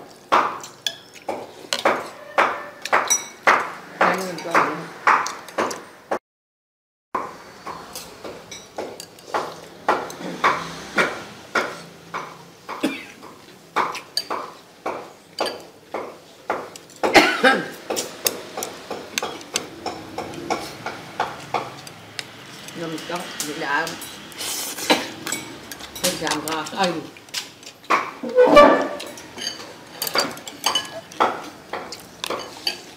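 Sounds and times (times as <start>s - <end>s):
spoon clinking on ceramic plate: 28.4s - 31.1s.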